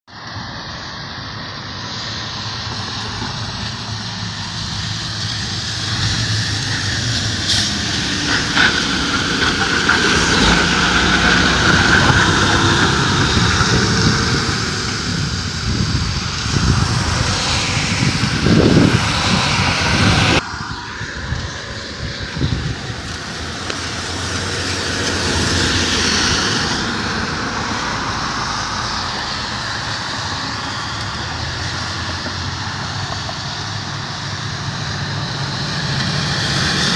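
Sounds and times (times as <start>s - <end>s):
diesel truck engine drone: 0.1s - 36.9s
tyre hiss on wet pavement: 0.2s - 18.3s.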